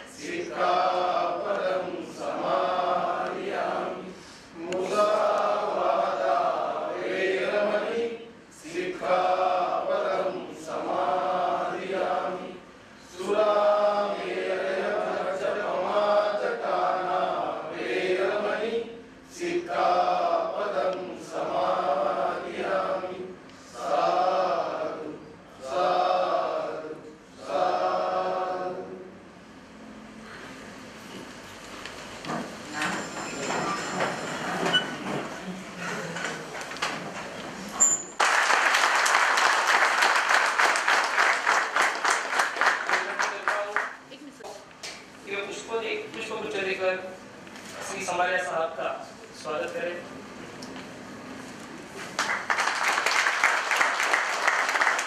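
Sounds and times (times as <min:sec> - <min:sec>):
group chanting a prayer: 0:00.0 - 0:29.2.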